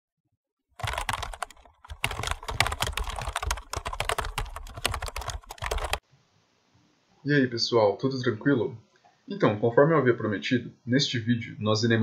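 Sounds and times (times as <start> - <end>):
rapid typing on a keyboard: 0.8 - 6.0.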